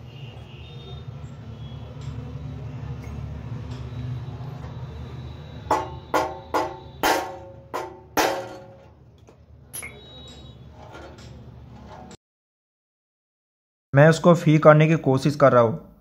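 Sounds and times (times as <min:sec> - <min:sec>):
sharp metallic knocks on motor: 0:05.6 - 0:08.8.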